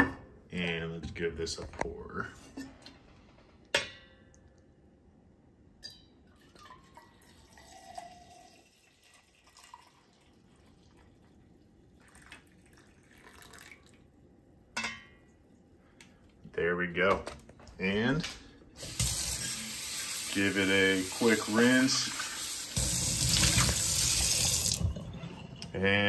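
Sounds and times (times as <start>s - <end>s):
coffee pouring into metal cup: 6.3s - 14.0s.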